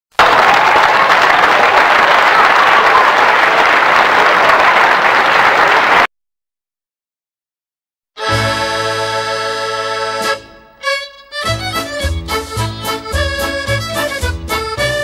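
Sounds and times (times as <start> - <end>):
audience applause: 0.1 - 6.1.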